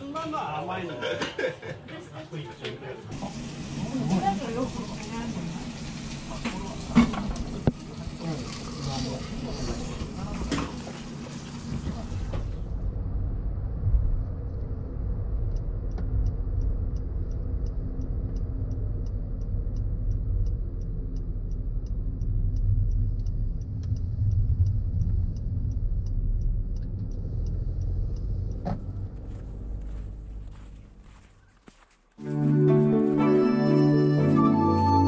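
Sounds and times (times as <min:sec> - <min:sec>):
car tyre and engine rumble: 0:06.1 - 0:32.2
turn signal ticking: 0:13.6 - 0:31.2.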